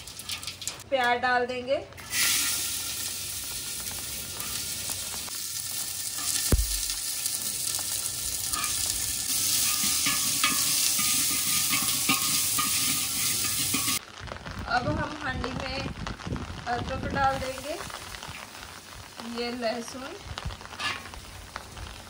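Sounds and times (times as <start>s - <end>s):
onions sizzling in hot oil: 0.0s - 0.8s, 2.0s - 22.0s
sharp knock: 6.5s - 6.9s.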